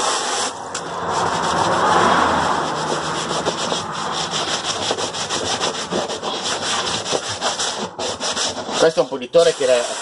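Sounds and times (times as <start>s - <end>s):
hand rubbing wet plastic: 0.0s - 10.0s.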